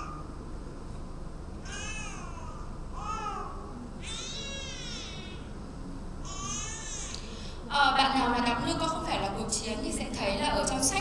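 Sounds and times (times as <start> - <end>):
newborn baby crying: 1.6 - 5.5, 6.2 - 7.3.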